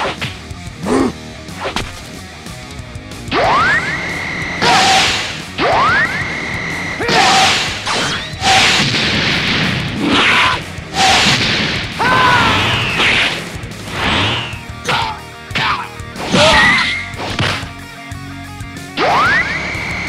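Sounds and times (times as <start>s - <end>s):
rising energy charge whine: 3.2s - 8.6s.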